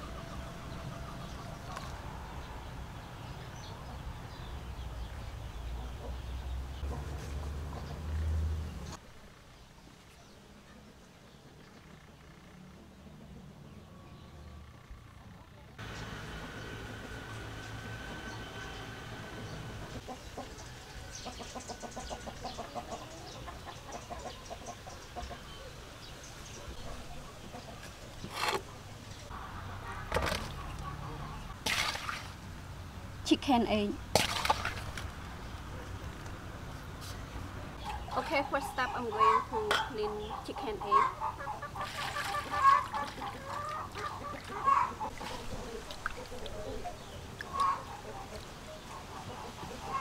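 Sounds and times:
small birds chirping: 0:00.0 - 0:31.6, 0:35.1 - 0:50.0
chickens clucking: 0:19.2 - 0:25.9, 0:26.5 - 0:31.6, 0:37.8 - 0:50.0.

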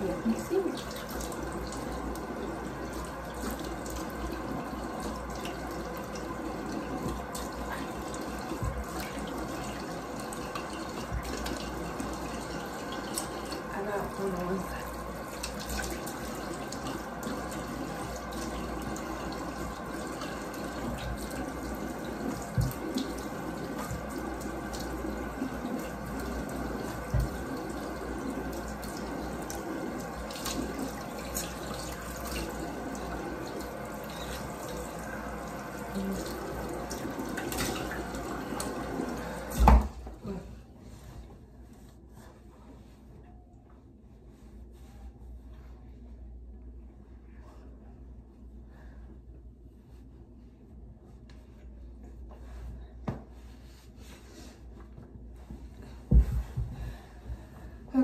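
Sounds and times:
sink tap running: 0:00.0 - 0:40.1.

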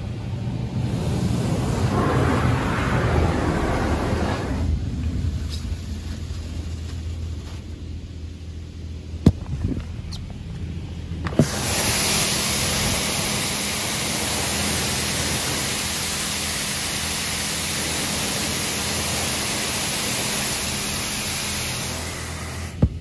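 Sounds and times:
high-pressure water spray hissing: 0:00.0 - 0:07.2, 0:11.3 - 0:22.9
low hum: 0:00.0 - 0:11.8.

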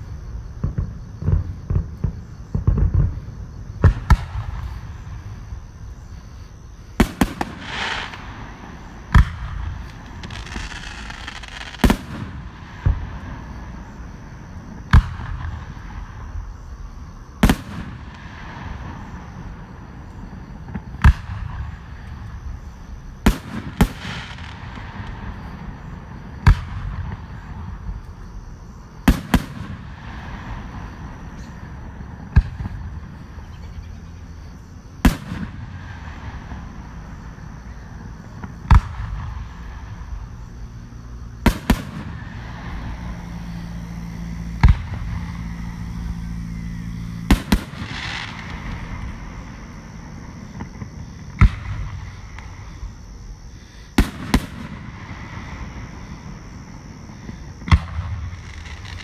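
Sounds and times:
background noise: 0:00.0 - 0:59.0
fireworks bursting: 0:00.0 - 0:59.0
low hum: 0:35.8 - 0:50.8.

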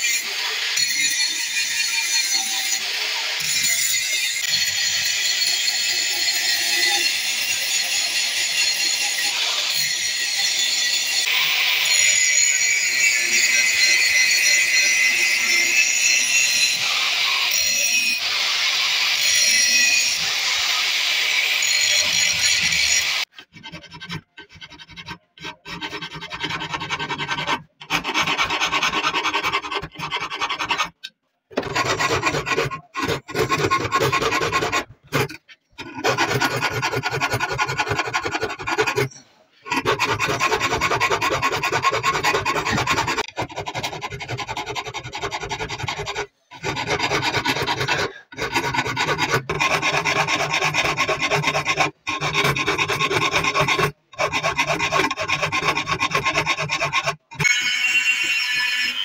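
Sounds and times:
blade rasping on abrasive: 0:17.5 - 0:59.0.

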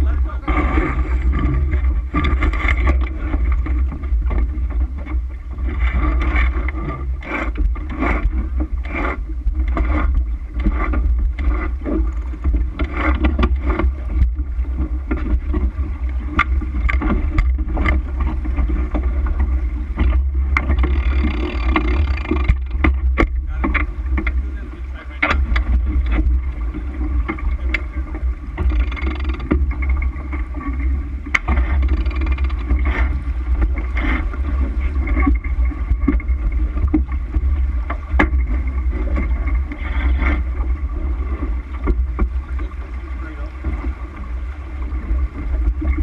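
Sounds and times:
water rushing along hull: 0:00.0 - 0:46.0
wind buffeting microphone: 0:00.0 - 0:46.0
deck gear clicks and knocks: 0:20.0 - 0:24.4, 0:25.2 - 0:26.4, 0:28.6 - 0:30.7, 0:31.3 - 0:33.1.

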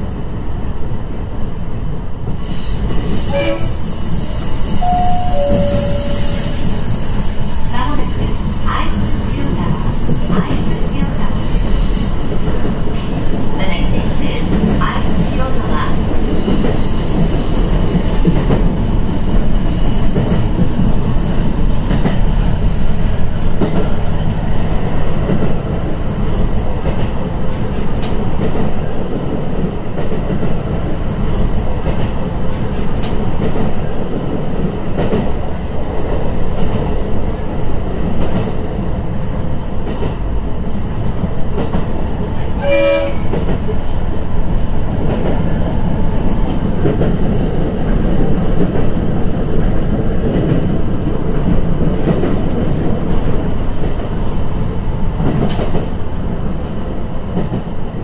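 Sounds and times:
train engine and wheels rumbling: 0:00.0 - 0:58.0
rail-joint clicks: 0:02.3 - 0:18.8, 0:25.2 - 0:35.4, 0:41.5 - 0:54.3, 0:55.2 - 0:57.9
short pitched tone: 0:04.8 - 0:06.7.

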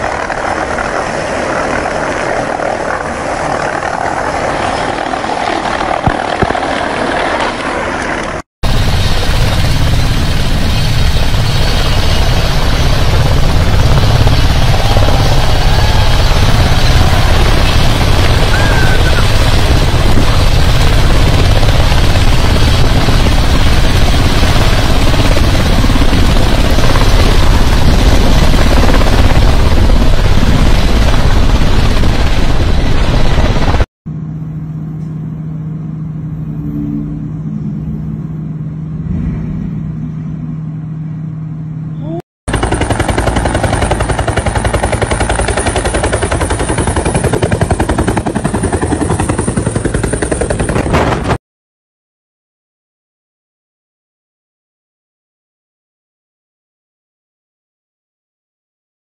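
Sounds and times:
helicopter blade chop: 0:00.0 - 0:33.8, 0:42.5 - 0:51.4
tandem-rotor helicopter running: 0:00.0 - 0:36.7, 0:42.0 - 0:51.4
muffled helicopter hum: 0:00.0 - 0:51.4.

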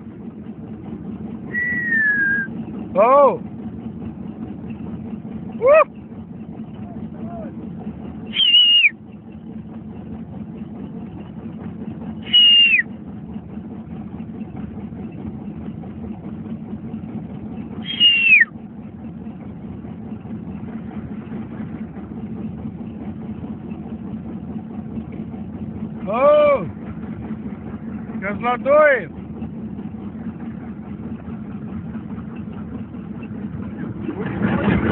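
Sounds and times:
low engine hum: 0:00.0 - 0:34.9
person whistling: 0:01.5 - 0:02.5, 0:08.3 - 0:08.9, 0:12.3 - 0:12.8, 0:17.8 - 0:18.5.

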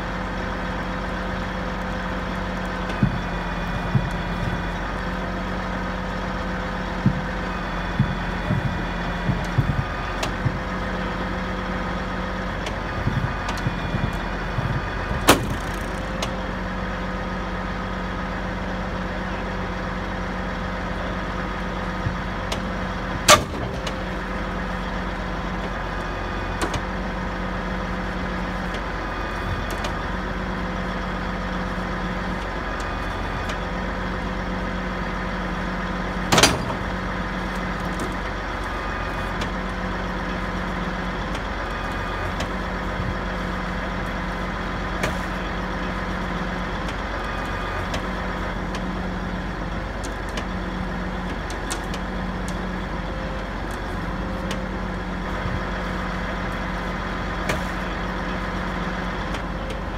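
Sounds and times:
diesel truck engine running: 0:00.0 - 0:59.9
low hum: 0:00.0 - 0:59.9
loud sharp clanks: 0:22.6 - 0:24.0.

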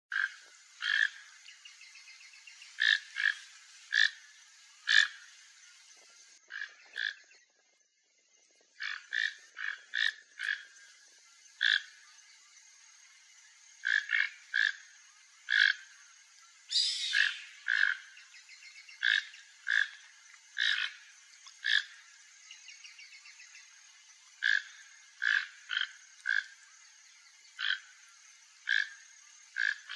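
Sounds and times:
toucan hoarse croaking calls: 0:00.1 - 0:01.3, 0:02.8 - 0:05.3, 0:06.4 - 0:07.3, 0:08.8 - 0:10.8, 0:13.8 - 0:14.9, 0:16.7 - 0:18.2, 0:19.0 - 0:22.0, 0:24.4 - 0:26.6, 0:27.6 - 0:27.9
steady high hiss: 0:00.1 - 0:29.9.

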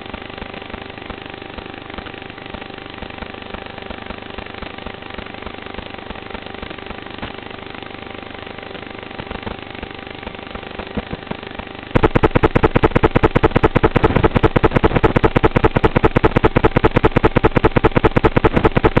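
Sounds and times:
quadcopter motors running: 0:09.2 - 0:19.0
fast regular clicking: 0:12.0 - 0:19.0.

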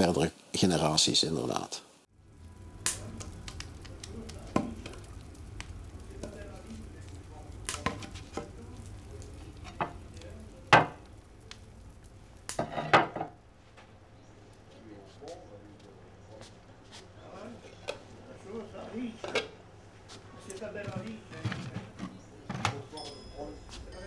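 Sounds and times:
wood fire crackling: 0:00.0 - 0:24.0
low rumble: 0:02.1 - 0:12.5.

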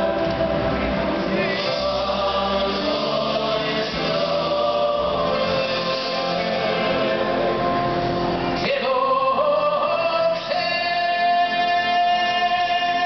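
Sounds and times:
drum kit: 0:00.0 - 0:08.3
keyboards: 0:00.0 - 0:13.0
voices singing together: 0:00.0 - 0:13.0.

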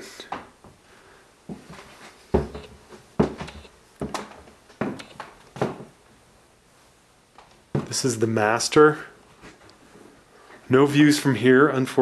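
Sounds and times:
footsteps on wood floor: 0:01.5 - 0:06.0, 0:07.7 - 0:08.0.

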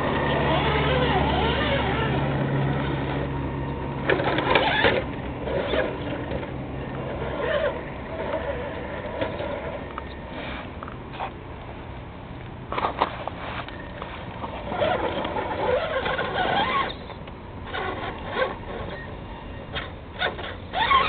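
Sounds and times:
small electric motor whirring: 0:00.1 - 0:03.3, 0:14.6 - 0:21.0.

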